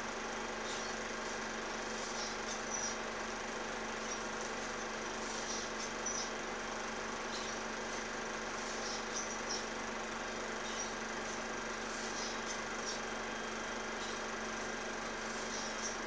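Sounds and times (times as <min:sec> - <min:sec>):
constant low hum: 0:00.0 - 0:16.0.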